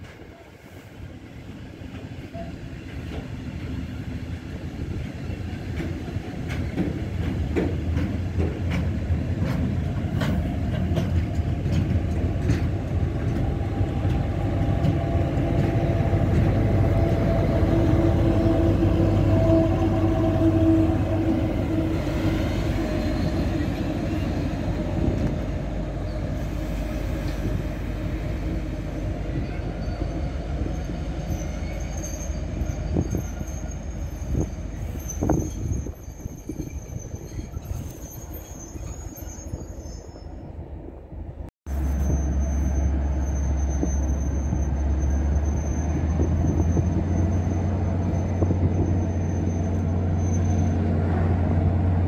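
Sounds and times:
freight train rumbling: 0.0 - 52.0
wheels clicking over rail joints: 5.7 - 17.5.

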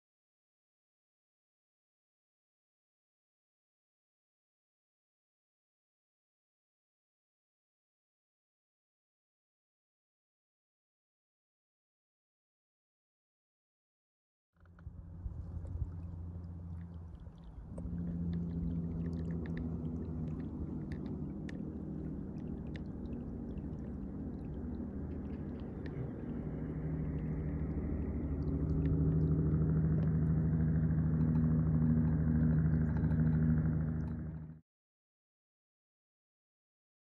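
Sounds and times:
faint clicks: 14.6 - 30.3
small boat motor humming: 14.6 - 34.6.

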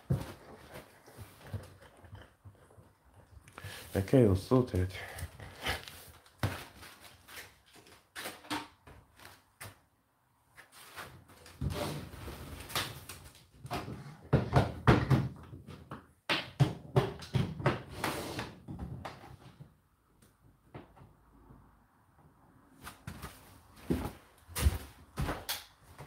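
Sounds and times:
knocks and clunks of handling objects: 0.0 - 3.9, 13.3 - 18.0, 18.6 - 19.8.

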